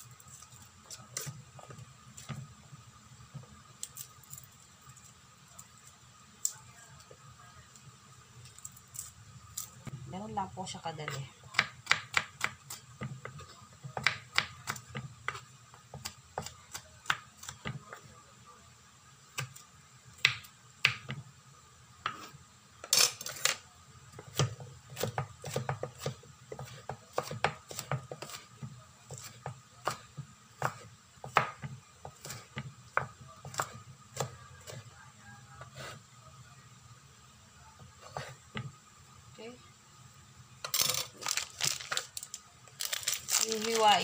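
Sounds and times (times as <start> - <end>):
knife chopping on wooden board: 11.1 - 13.4, 24.2 - 34.8.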